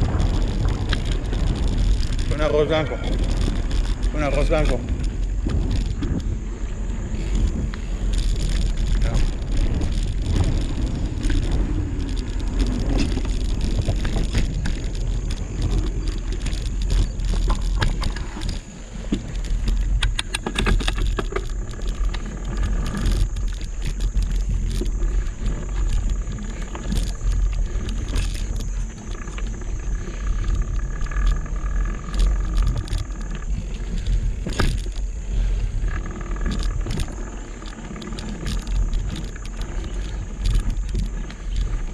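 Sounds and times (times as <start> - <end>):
bike parts rattling and clicking: 0.0 - 41.9
bike tyres crunching on dirt: 0.0 - 41.9
low rumble: 0.0 - 41.9.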